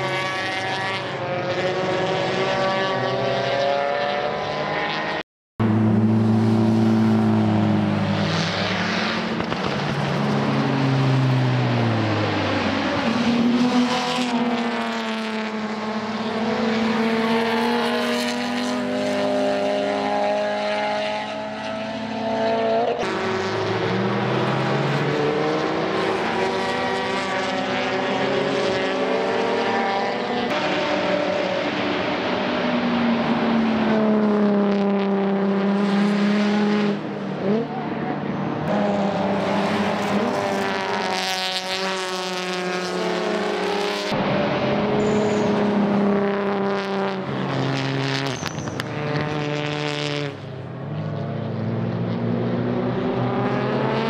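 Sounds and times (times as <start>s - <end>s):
racing cars passing at speed: 0.0s - 54.0s.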